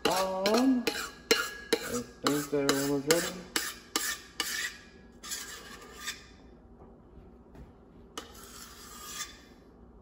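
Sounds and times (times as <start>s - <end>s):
spatula scraping metal bowl: 0.0s - 6.4s, 8.2s - 9.6s.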